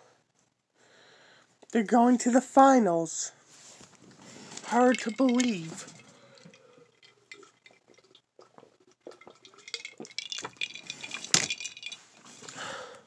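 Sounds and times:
liquid sloshing in a bottle: 3.8s - 12.6s
bottle clicks and knocks: 4.6s - 8.1s, 9.0s - 12.0s.

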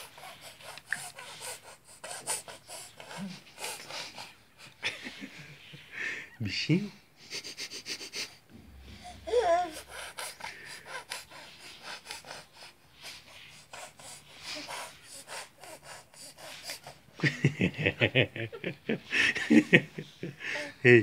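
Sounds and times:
baby snorting and sniffing: 0.0s - 4.8s, 7.2s - 17.2s
baby wavering voice: 9.0s - 10.0s.

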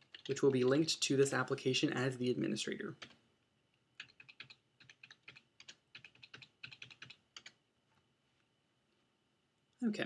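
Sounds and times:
computer keyboard keystrokes: 0.0s - 0.4s, 4.0s - 7.6s.

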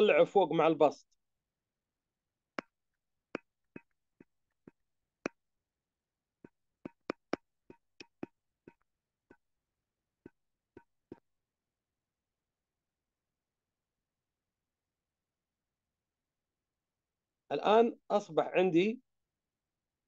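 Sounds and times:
stylus tapping on tablet screen: 2.6s - 5.4s, 6.4s - 9.5s.

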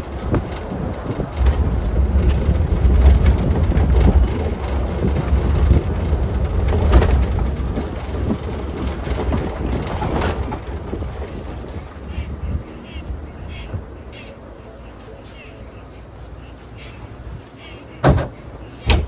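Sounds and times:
truck rumbling over dirt track: 0.0s - 12.7s
knocks and clicks: 0.2s - 11.4s.

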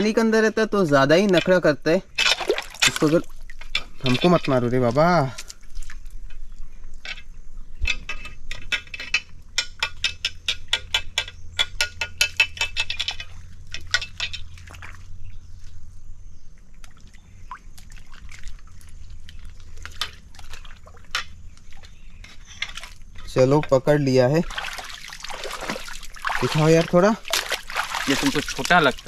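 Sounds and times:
muddy water splashing: 2.1s - 6.6s, 13.0s - 15.9s, 16.5s - 23.2s, 24.1s - 29.0s.

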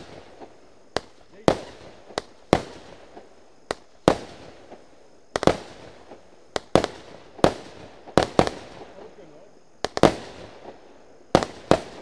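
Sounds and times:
firework bangs with echo: 0.0s - 12.0s.

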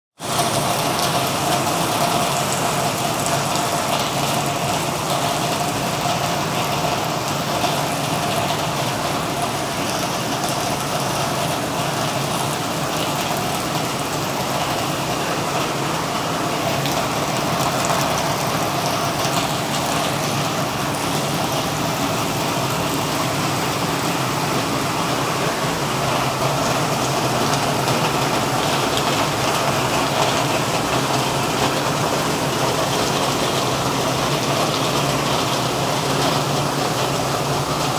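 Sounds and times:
heavy rain on metal roofing: 0.2s - 37.9s.

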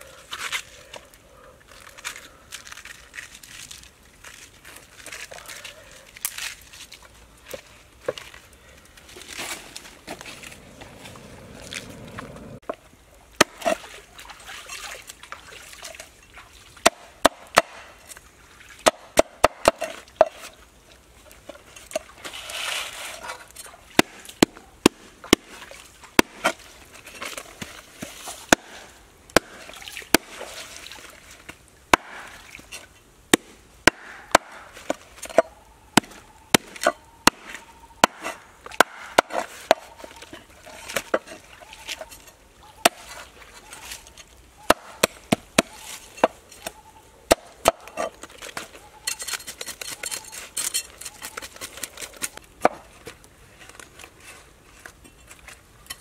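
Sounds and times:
knife scraping: 47.8s - 52.4s.

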